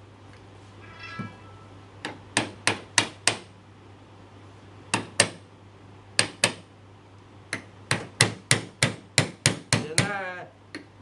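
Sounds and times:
hammer striking wooden joint: 2.4s - 3.5s, 4.9s - 5.4s, 6.2s - 6.6s, 7.9s - 10.2s.

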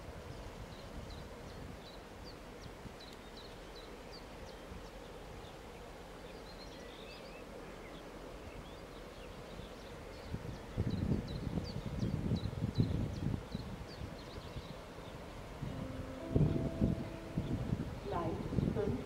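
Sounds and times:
small birds chirping: 0.3s - 19.0s
locomotive low rumble: 15.2s - 19.0s.

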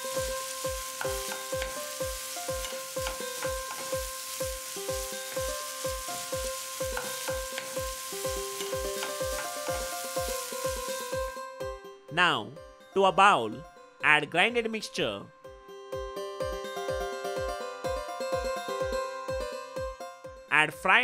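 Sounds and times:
food sizzling in oil: 0.0s - 11.4s
spoon stirring in pan: 1.0s - 5.5s, 6.1s - 11.0s.

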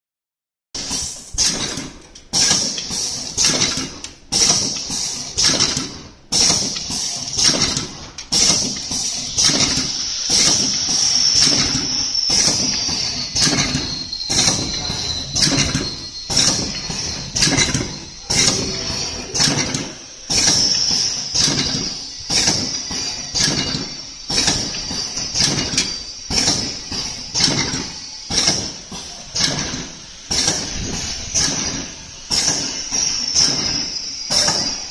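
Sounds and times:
high machine whine: 0.8s - 34.9s
packaging machine jaws clacking: 16.4s - 20.7s.

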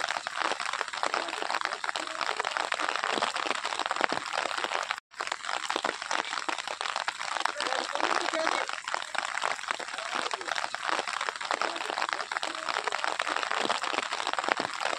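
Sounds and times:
rain pattering: 0.0s - 14.9s.

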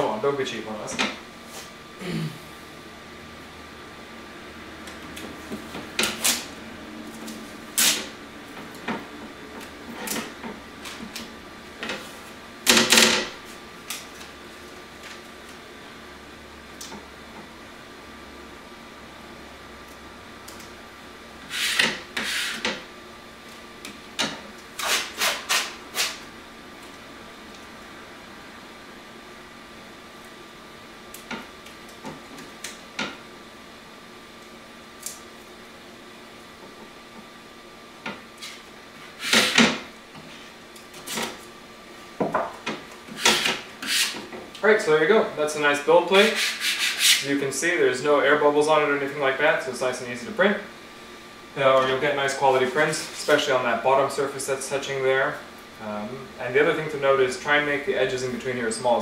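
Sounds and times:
steady hum: 0.0s - 59.0s
tape ripping: 7.8s - 8.1s.

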